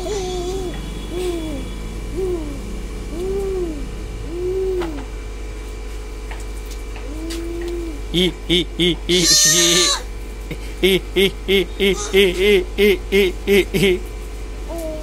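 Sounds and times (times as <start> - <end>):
soft hooting calls: 0.2 - 5.1.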